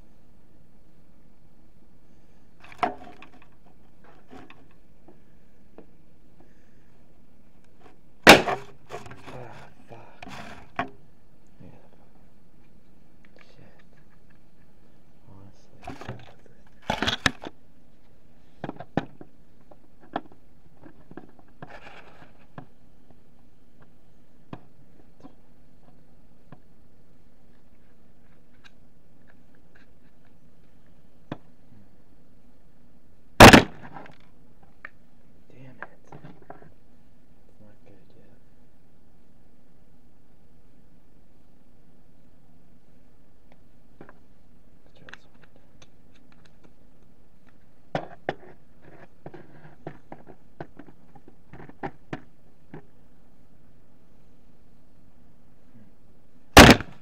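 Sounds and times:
pistol blast: 8.2 - 8.6, 33.4 - 33.9, 56.6 - 57.0.

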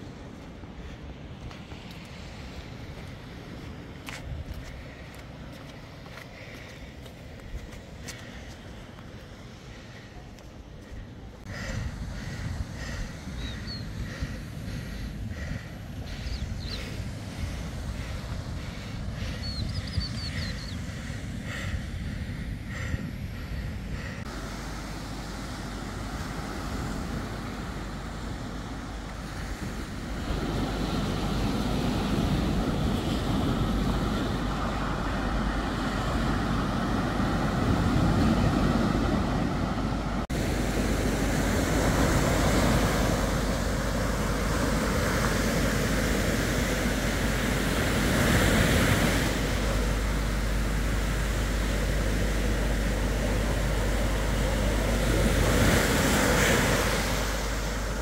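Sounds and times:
wind on microphone: 10.9 - 24.4
surf breaking on beach: 11.4 - 58.0.

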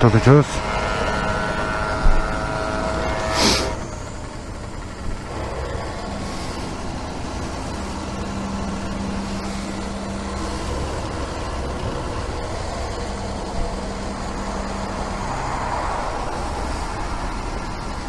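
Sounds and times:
fuel dispenser hum: 0.0 - 18.0
fuel flowing hiss: 1.3 - 18.0.

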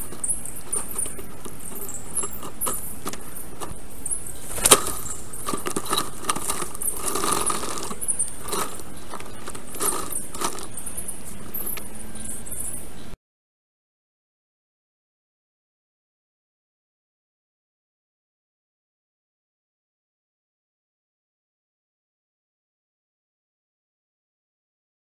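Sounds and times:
sticks clicking and rustling: 0.0 - 3.8, 4.4 - 11.9
high rapid chicks chirping: 0.0 - 13.2.

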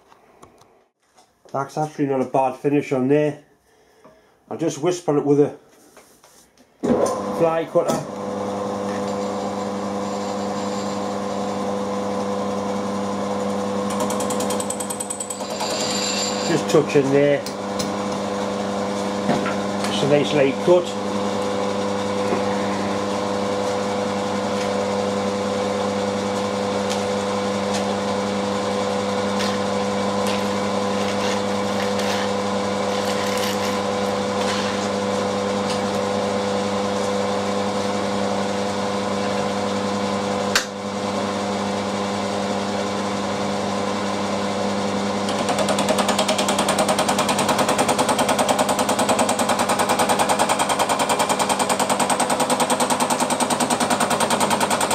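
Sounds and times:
milling machine cutting metal: 13.5 - 18.4, 45.2 - 54.9.

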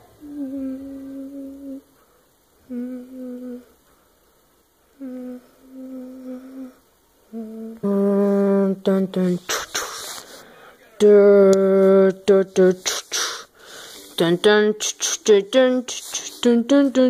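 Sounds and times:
person humming held notes: 0.2 - 2.0, 2.6 - 3.8, 4.9 - 10.1.

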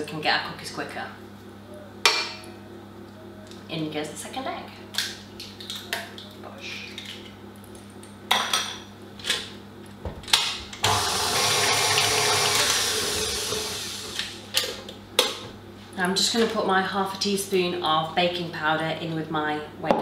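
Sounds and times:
stand mixer running: 10.8 - 14.5.

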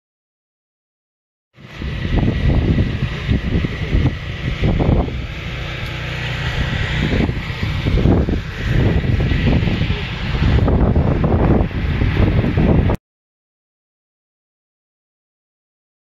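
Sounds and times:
wind buffeting microphone: 1.6 - 13.0.

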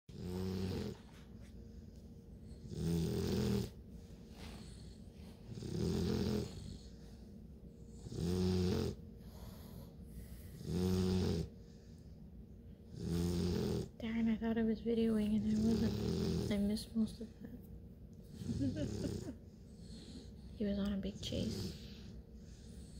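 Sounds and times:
puppy snoring: 0.1 - 1.3, 2.4 - 3.8, 4.4 - 7.1, 7.8 - 11.8, 12.8 - 14.0, 15.2 - 17.1, 18.2 - 20.5, 21.1 - 22.9.

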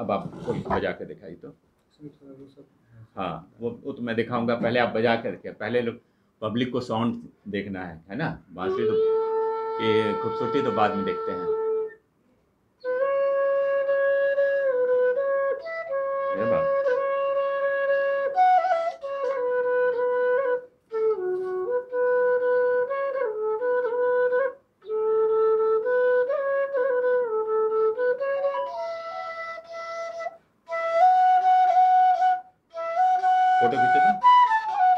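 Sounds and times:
bamboo flute melody: 8.6 - 12.0, 12.8 - 34.9.

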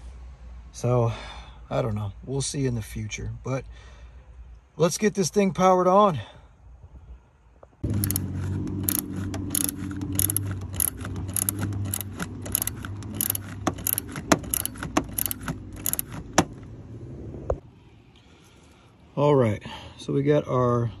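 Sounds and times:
ratchet wrench clicking: 7.8 - 16.5.

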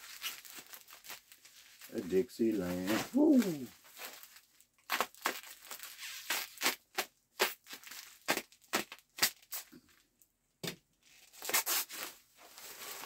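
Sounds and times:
packaging rustling and snapping: 0.1 - 2.0, 2.7 - 9.7.

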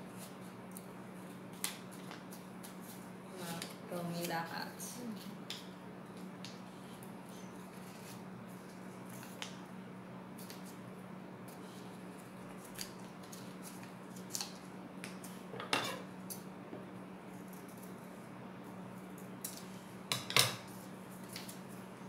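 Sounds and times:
steady low hum: 0.0 - 22.0
paper rustling and creasing: 7.6 - 9.5, 11.5 - 14.7.

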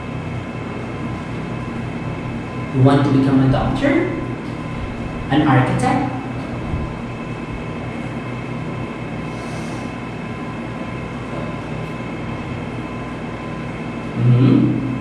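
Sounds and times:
machine droning hum: 0.0 - 15.0
short voice sound: 14.2 - 14.8.

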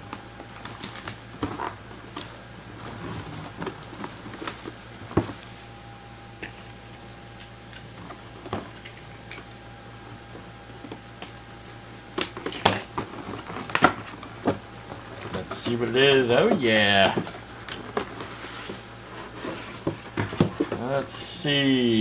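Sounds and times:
faint low hum: 0.0 - 22.0
cardboard box being opened: 0.5 - 5.4.

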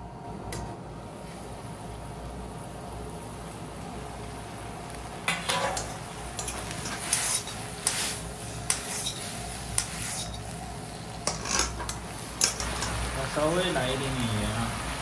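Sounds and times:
metal utensil scraping a pot: 8.7 - 10.4, 11.2 - 12.9.

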